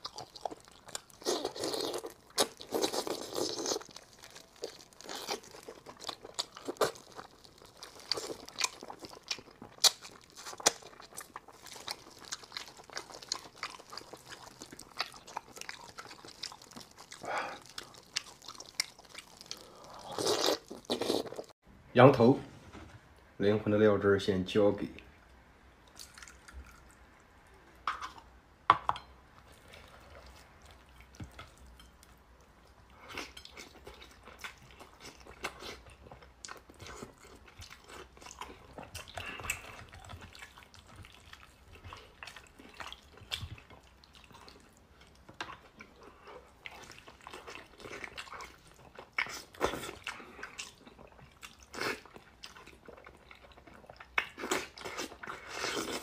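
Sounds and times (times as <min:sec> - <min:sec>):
biting and chewing: 0:00.0 - 0:21.5.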